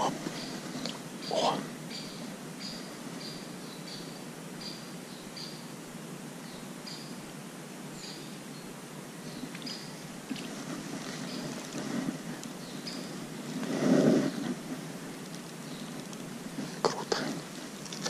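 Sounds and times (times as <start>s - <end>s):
bird chirping: 0.0s - 5.8s, 6.4s - 7.3s, 7.9s - 10.5s, 12.5s - 13.6s
steady outdoor hiss: 0.0s - 18.0s.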